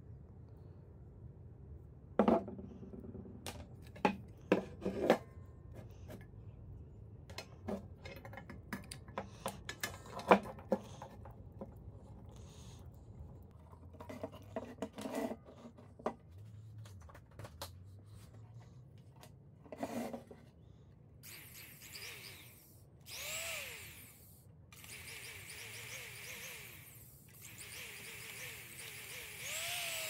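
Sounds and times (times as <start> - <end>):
sewing machine motor whirring: 21.2 - 30.0.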